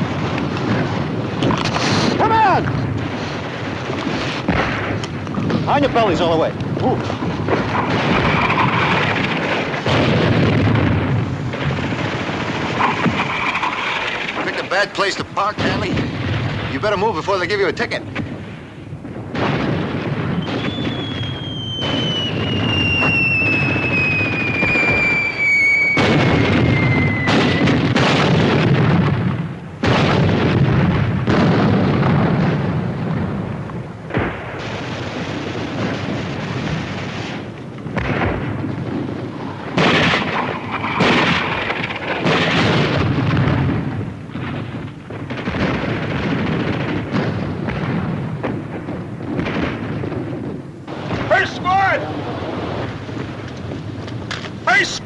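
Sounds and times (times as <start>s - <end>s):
gunshots: 0.0s - 55.0s
shell explosions: 0.0s - 55.0s
falling artillery shell whistle: 20.4s - 27.8s.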